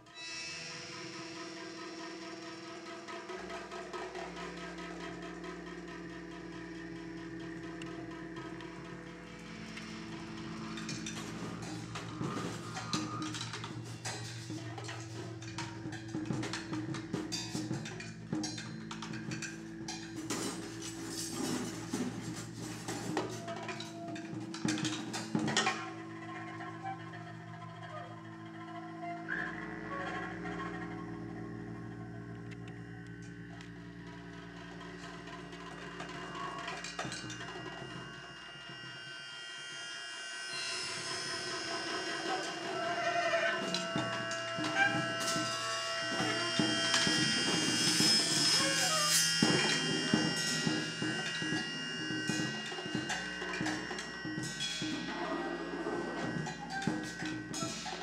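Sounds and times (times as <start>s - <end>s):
held low reed tones: 0.0s - 58.0s
live electronics: 0.0s - 58.0s
low steady drone: 0.0s - 58.0s
hand drum and percussion: 1.8s - 28.4s, 40.9s - 58.0s.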